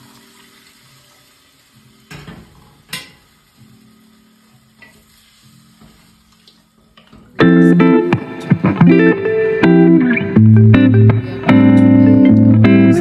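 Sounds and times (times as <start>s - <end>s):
water pouring into pot: 0.0s - 2.2s, 3.2s - 6.8s.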